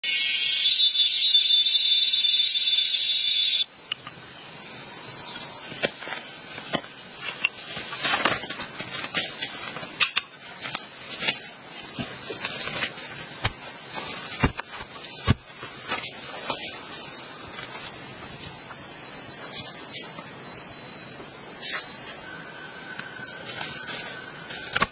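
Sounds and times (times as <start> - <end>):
insects high whine: 0.0 - 24.9
lower pulsed insect call: 0.0 - 24.9.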